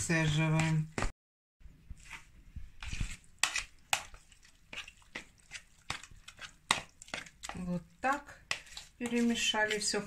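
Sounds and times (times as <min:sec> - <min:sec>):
utensil scraping bowl: 0:02.0 - 0:10.0.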